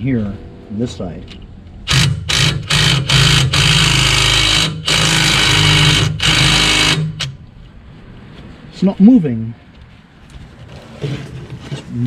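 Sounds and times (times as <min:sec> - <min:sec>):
impact wrench hammering: 0:01.3 - 0:07.4.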